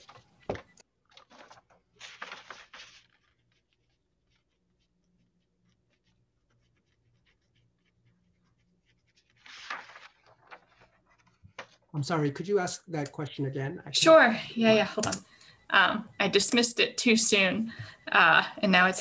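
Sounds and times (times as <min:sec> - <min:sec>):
rustling: 0:01.1 - 0:11.8.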